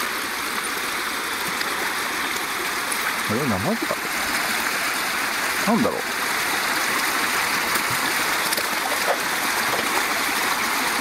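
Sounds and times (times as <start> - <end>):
flowing water rushing: 0.0 - 11.0
fish splashing: 1.3 - 11.0.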